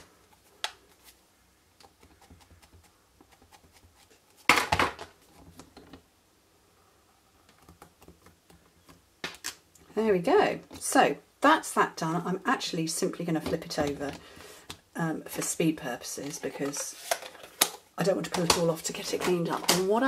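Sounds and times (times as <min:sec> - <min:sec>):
plastic clatter: 0:16.2 - 0:19.9.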